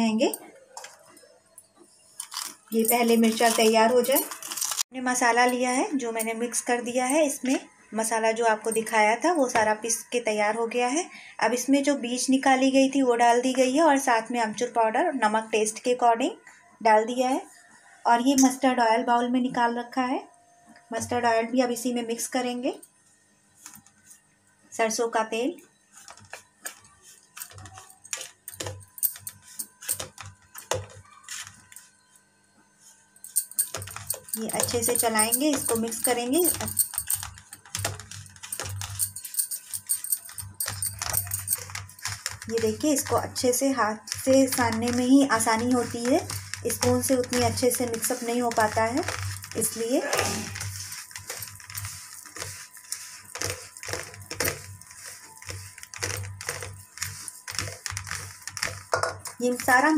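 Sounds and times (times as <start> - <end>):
hand squishing paste on steel plate: 25.9 - 31.8, 33.2 - 59.9
metal spoon scraping steel plate: 44.2 - 59.9.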